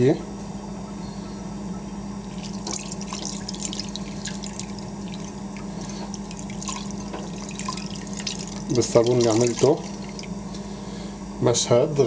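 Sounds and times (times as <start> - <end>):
water pouring and splashing: 2.3 - 10.4.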